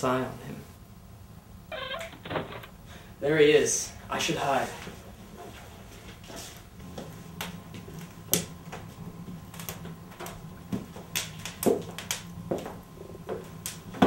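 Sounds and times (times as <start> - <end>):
low steady hum: 0.0 - 14.0
sharp knocks and clicks: 2.0 - 2.8.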